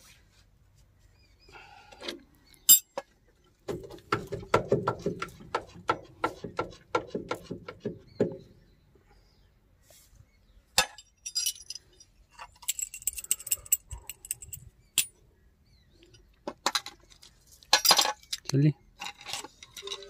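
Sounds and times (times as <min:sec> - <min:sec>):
metal tools clinking: 0:02.7 - 0:03.0, 0:10.8 - 0:15.2, 0:17.7 - 0:20.0.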